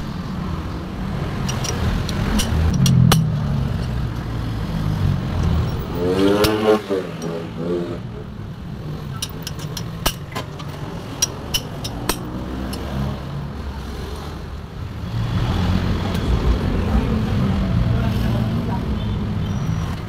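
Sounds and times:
metal tools clicking on valve springs: 0:01.4 - 0:04.4, 0:05.3 - 0:07.5, 0:09.0 - 0:13.0.

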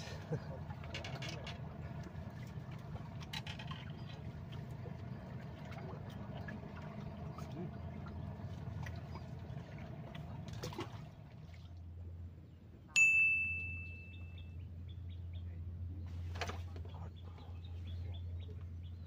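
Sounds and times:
low steady hum: 0:00.0 - 0:19.0
bell-like ding: 0:13.0 - 0:14.5.

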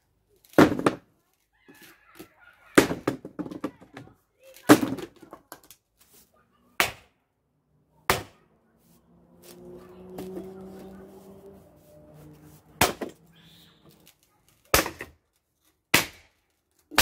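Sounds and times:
maul splitting wood: 0:00.4 - 0:01.1, 0:02.8 - 0:03.7, 0:06.8 - 0:07.1, 0:08.1 - 0:08.4, 0:12.6 - 0:13.3, 0:14.1 - 0:17.0.

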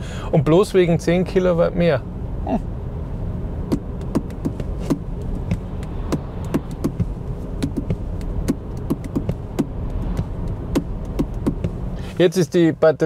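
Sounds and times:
tyre and road rumble in car: 0:00.0 - 0:13.0
sharp ticks: 0:03.7 - 0:11.8.

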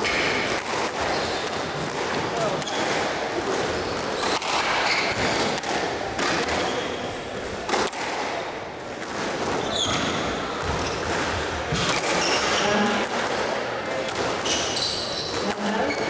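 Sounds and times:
squash ball hitting rackets and walls: 0:00.0 - 0:16.0
shoe squeak on court floor: 0:01.1 - 0:01.4, 0:03.8 - 0:05.6, 0:09.5 - 0:11.1, 0:11.8 - 0:12.6, 0:14.4 - 0:16.0.

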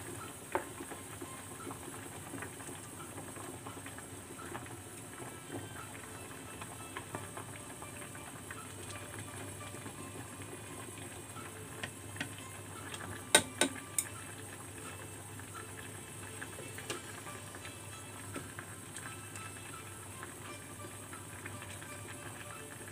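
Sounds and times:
soup boiling in a pot: 0:00.0 - 0:22.9
chopsticks striking a pot: 0:13.3 - 0:14.1.

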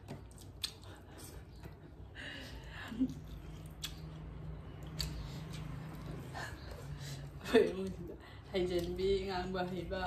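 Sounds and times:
lip smacks and clicks: 0:00.0 - 0:01.9, 0:03.1 - 0:06.3
chewing and wet mouth noises: 0:00.0 - 0:09.4.

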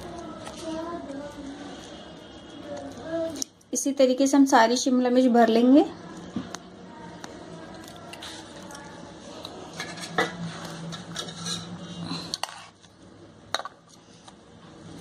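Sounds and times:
spoon and knife scraping a pan: 0:09.8 - 0:12.8.

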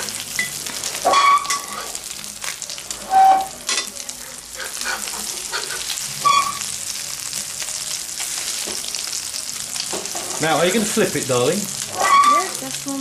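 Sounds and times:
omelette sizzling in oil: 0:00.0 - 0:13.0
metal spatula scraping a wok: 0:00.8 - 0:02.1, 0:03.0 - 0:03.6, 0:04.5 - 0:06.7, 0:11.8 - 0:12.6.

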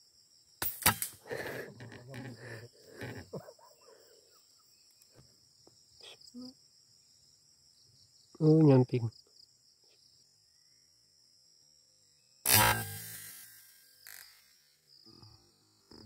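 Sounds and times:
insects chirring: 0:00.0 - 0:16.0
air rifle shot: 0:00.6 - 0:01.2, 0:12.5 - 0:13.4.

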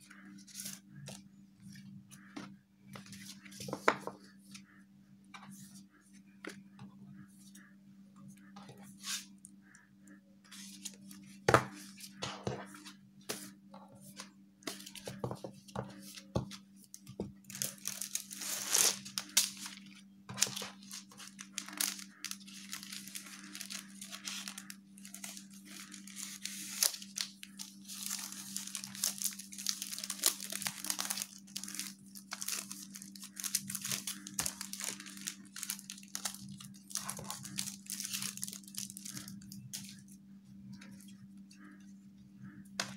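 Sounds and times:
paper and plastic rustling: 0:17.2 - 0:40.2.

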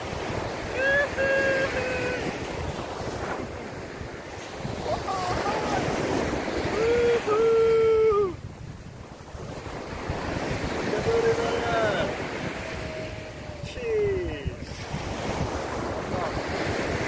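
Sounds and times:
surf breaking on shore: 0:00.0 - 0:17.0
wind buffeting microphone: 0:00.0 - 0:17.0
person giving sung-out calls: 0:00.7 - 0:02.4, 0:11.4 - 0:14.6.

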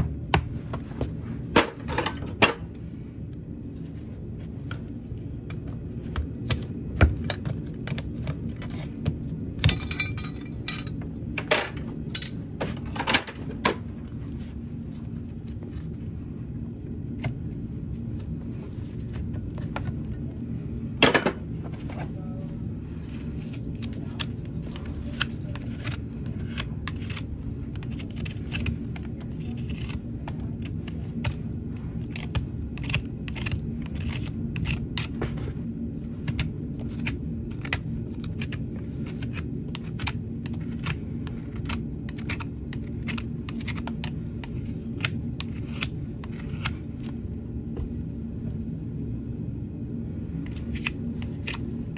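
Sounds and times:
knife scraping hoof: 0:23.2 - 0:31.2.

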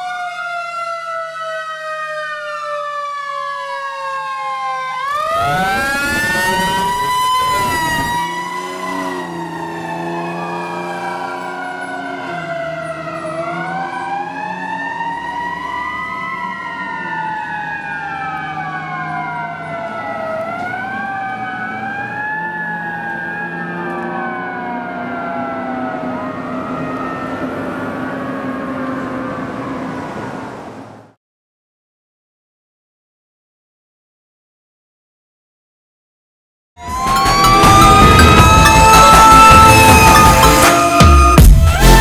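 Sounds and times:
fire engine sirens wailing: 0:00.0 - 0:31.2, 0:36.8 - 0:42.0.

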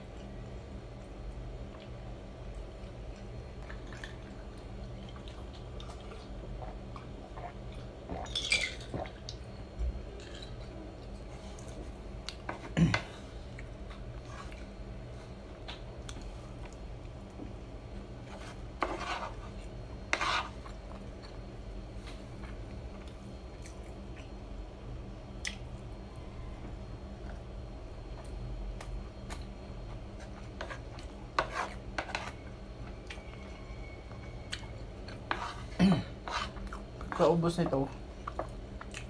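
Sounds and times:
faint steady hum: 0:00.0 - 0:39.0
wooden spoon scraping a plate: 0:18.2 - 0:20.7, 0:30.2 - 0:32.4, 0:35.1 - 0:37.3.

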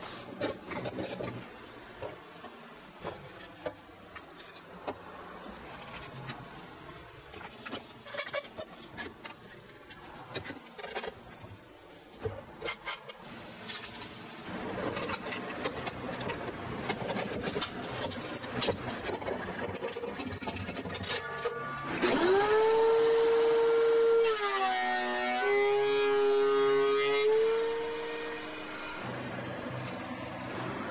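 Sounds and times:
planer motor whine: 0:21.3 - 0:30.9.

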